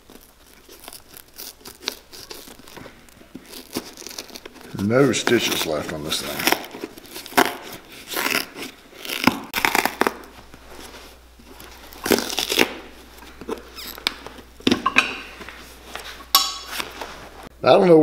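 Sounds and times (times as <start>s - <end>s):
leather ripping: 0.0s - 14.8s
knife cutting leather sole: 0.5s - 10.3s.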